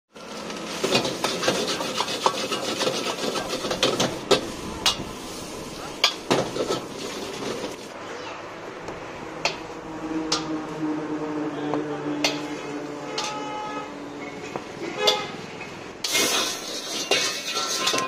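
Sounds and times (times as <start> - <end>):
steel ladle scraping a wok: 0.7 - 7.9, 16.0 - 18.0.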